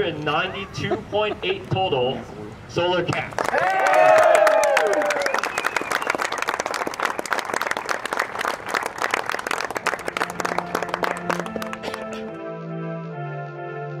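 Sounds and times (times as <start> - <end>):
crowd applauding: 3.1 - 12.3
crowd cheering: 3.4 - 12.0
background music: 9.8 - 14.0.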